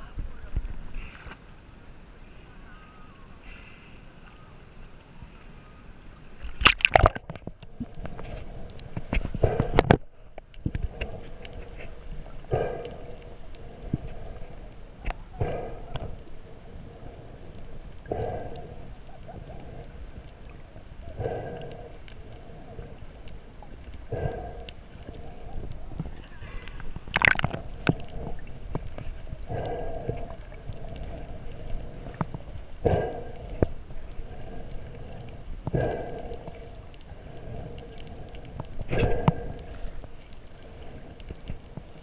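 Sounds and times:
muffled underwater water surges: 0.0s - 42.0s
water splashing: 6.3s - 42.0s.

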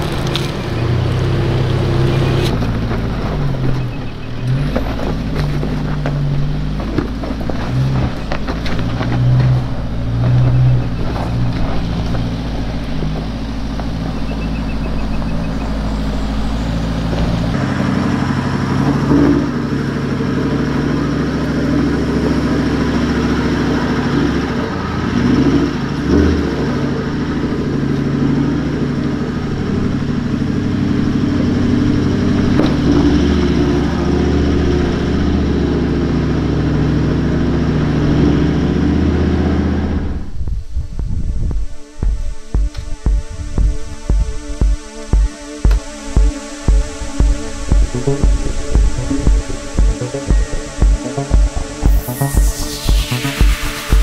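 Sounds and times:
stones crunching under tyres: 0.0s - 17.6s
engines revving: 0.0s - 54.0s.

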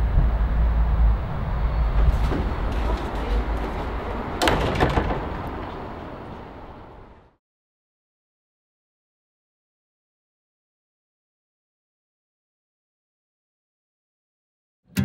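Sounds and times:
low outdoor rumble: 0.0s - 7.4s
door banging: 1.8s - 7.3s.

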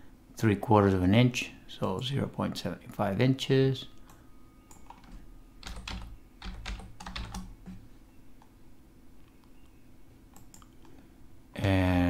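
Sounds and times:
keyboard keys tapping: 4.7s - 8.5s.

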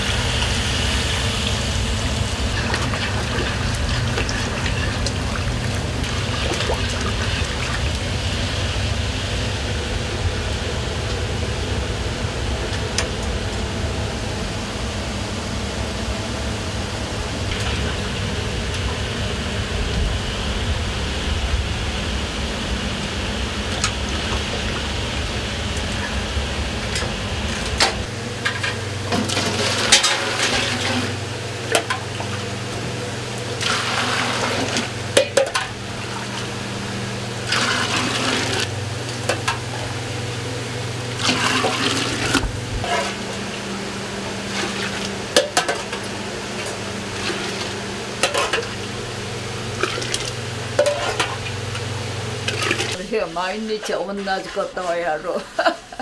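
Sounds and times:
steady low rumble: 0.0s - 29.9s, 34.8s - 44.5s
steady hum: 0.0s - 56.0s
ladle scooping and pouring liquid: 2.5s - 8.1s, 28.4s - 32.4s, 33.6s - 36.5s, 37.4s - 39.8s, 41.1s - 43.6s, 44.5s - 48.9s, 49.7s - 51.5s, 52.4s - 53.0s
liquid splashing in pot: 2.5s - 8.1s.

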